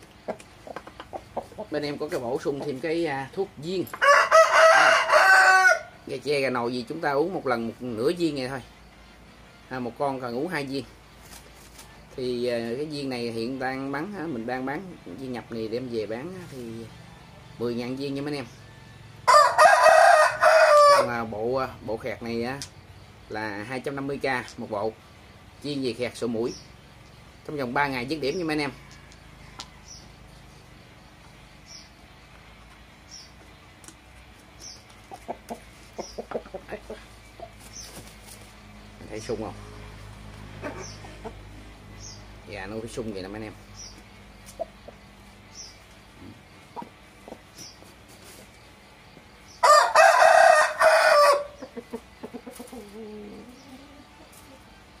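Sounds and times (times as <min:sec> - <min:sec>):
rooster crowing: 0:04.0 - 0:06.0, 0:18.8 - 0:21.2, 0:49.6 - 0:51.6.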